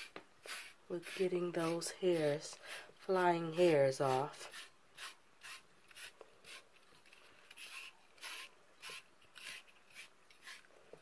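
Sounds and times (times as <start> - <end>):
brush scratching through dog fur: 0.0 - 6.6, 7.5 - 10.7.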